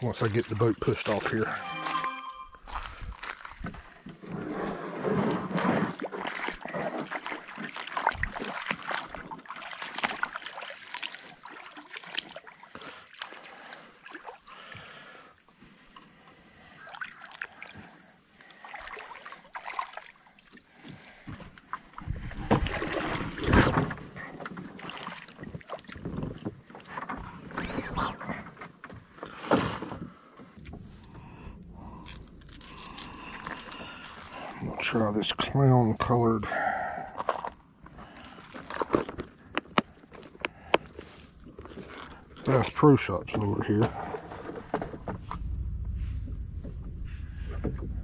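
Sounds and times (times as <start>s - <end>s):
water sloshing and splashing: 0.0s - 48.0s
boat hull scraping on bank: 4.1s - 7.1s, 43.4s - 48.0s.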